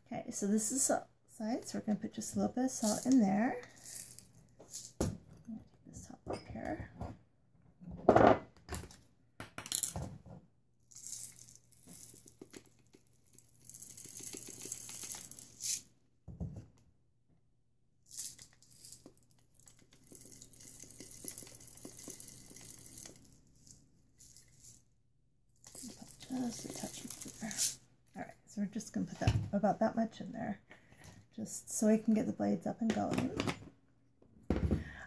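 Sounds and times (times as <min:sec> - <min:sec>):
salt grains trickling: 0:13.3 - 0:15.8, 0:18.1 - 0:24.8, 0:25.6 - 0:27.8.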